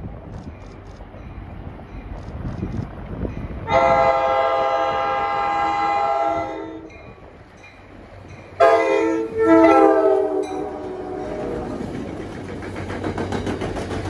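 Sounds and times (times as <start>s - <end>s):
train horn blasts: 3.7s - 7.1s, 8.6s - 11.8s.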